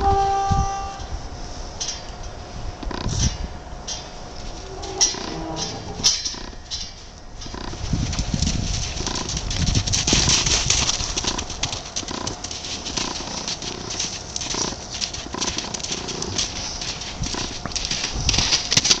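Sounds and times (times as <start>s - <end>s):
hoofbeats on sand: 7.4s - 19.0s.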